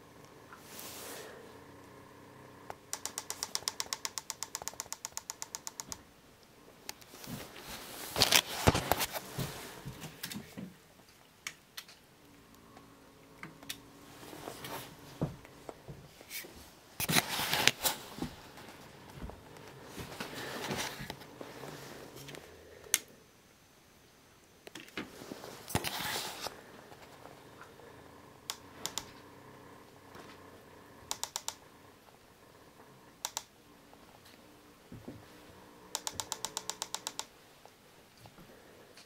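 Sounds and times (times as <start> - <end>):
rapid pitched clicks: 2.7 - 6.1, 28.4 - 29.3, 31.0 - 32.0, 33.2 - 33.6, 35.9 - 37.3.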